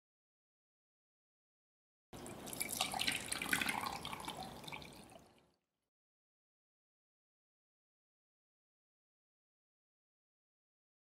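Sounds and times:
liquid pouring into glass: 2.2s - 5.5s.

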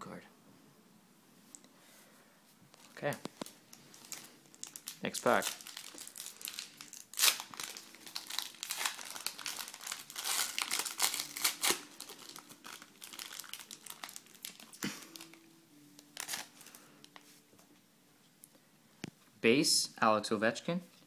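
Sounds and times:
foil wrapper crinkling: 2.8s - 17.2s.

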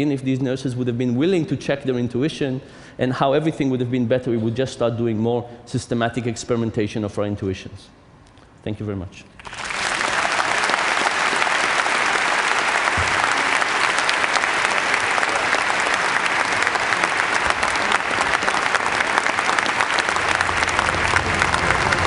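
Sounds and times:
audience applauding: 9.4s - 22.0s.

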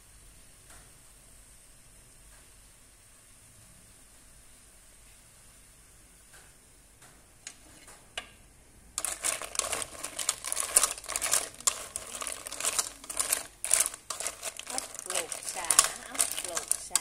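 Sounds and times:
snail shells rattling in metal pot: 9.0s - 17.0s.

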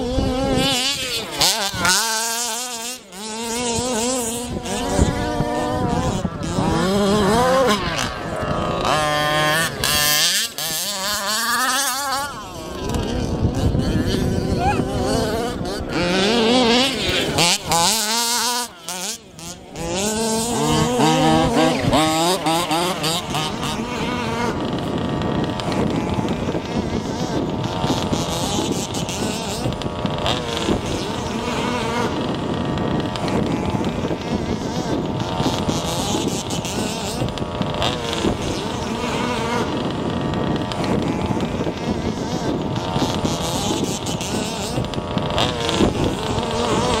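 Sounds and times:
small engines revving: 0.0s - 47.0s.

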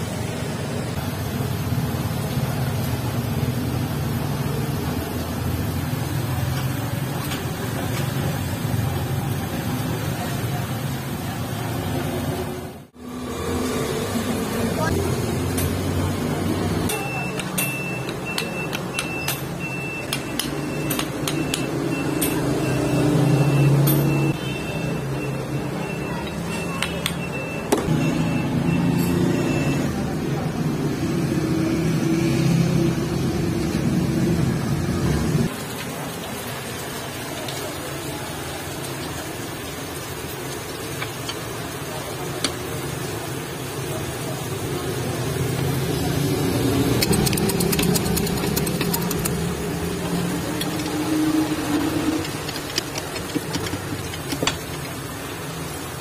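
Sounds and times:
high-pitched beep: 16.9s - 29.9s
sharp clicks: 47.0s - 49.5s.

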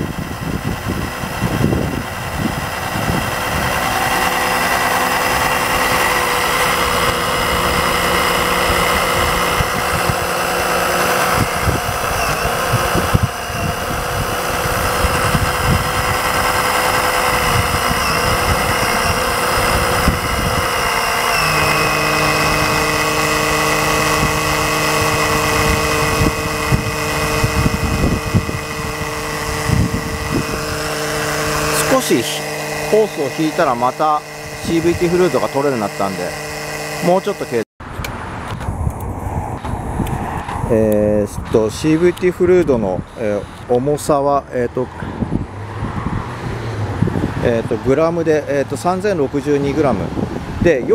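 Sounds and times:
fluid extraction pump running: 0.0s - 37.7s.

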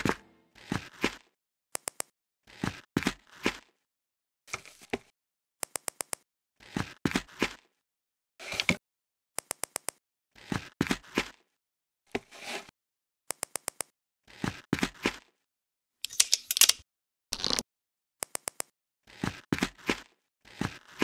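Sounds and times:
plastic bricks clicking: 16.0s - 16.8s.

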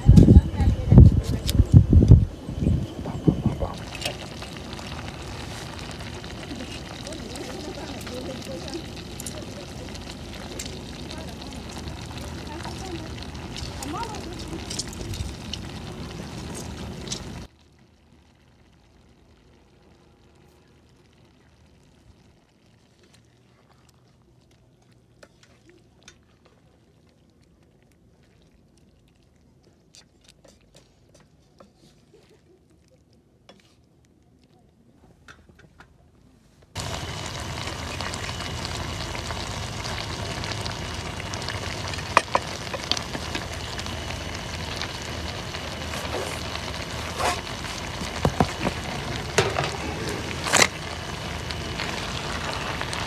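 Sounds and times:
food hissing in a pan: 36.8s - 53.0s.

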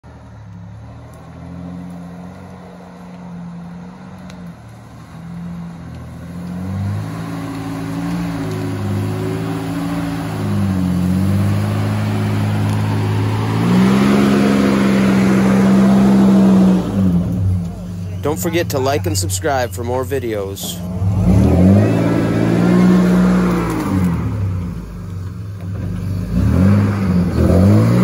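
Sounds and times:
truck engine revving: 0.0s - 28.0s.

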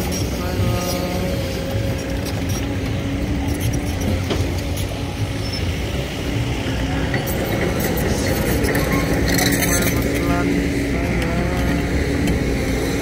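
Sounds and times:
diesel engines running: 0.0s - 13.0s.

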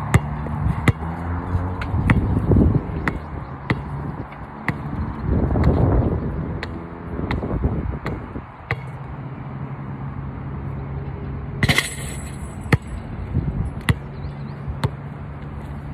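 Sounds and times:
basketball bouncing on court: 0.0s - 9.0s, 11.6s - 13.0s, 13.8s - 15.1s
chain net jangling rattle: 11.6s - 12.7s.

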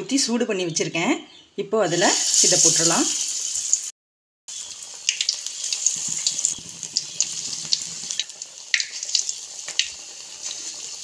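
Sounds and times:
food deep-frying in oil: 1.9s - 3.9s, 4.5s - 11.0s.

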